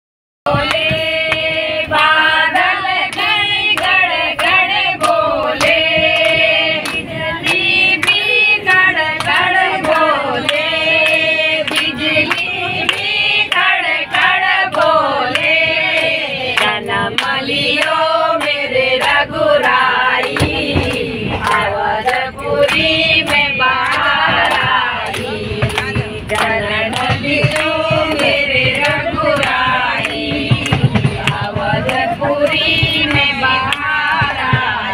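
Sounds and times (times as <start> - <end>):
hands clapping steady beat: 0.5 - 34.9
women singing devotional song: 0.5 - 34.9.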